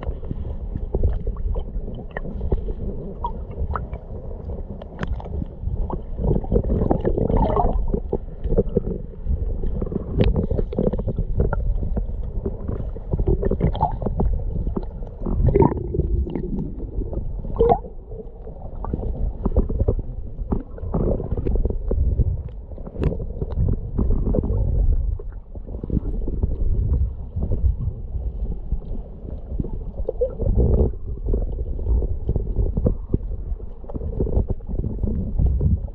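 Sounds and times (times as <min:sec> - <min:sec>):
underwater rumble and gurgling: 0:00.0 - 0:35.9.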